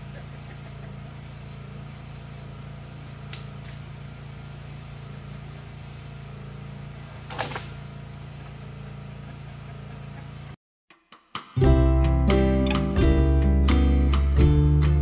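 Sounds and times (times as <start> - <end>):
low mechanical hum: 0.0 - 10.6
branches crackling and snapping: 3.2 - 3.9, 6.6 - 7.8.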